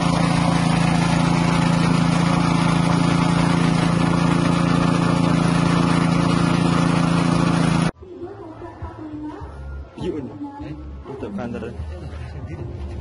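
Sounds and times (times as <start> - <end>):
extruder machine droning: 0.0 - 8.0.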